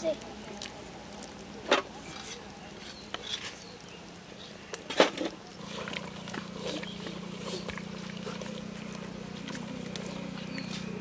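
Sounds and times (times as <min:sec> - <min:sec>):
metal ladle scraping pot: 0:01.7 - 0:03.7.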